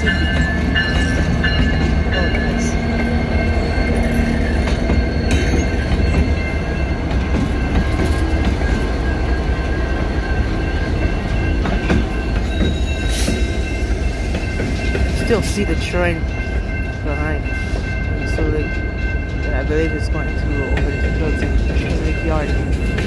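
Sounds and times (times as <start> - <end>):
diesel locomotive engine rumble: 0.0 - 23.0
train wheels on rails: 0.0 - 23.0
high wheel squeal: 12.2 - 13.8.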